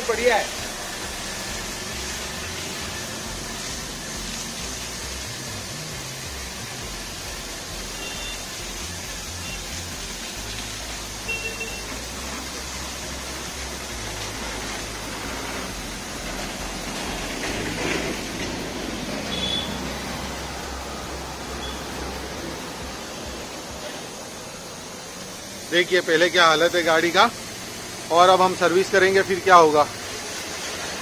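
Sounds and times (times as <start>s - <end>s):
pressure washer spraying foam: 0.0s - 31.0s
faint high beeps: 8.0s - 8.4s, 19.3s - 19.8s, 21.5s - 22.0s.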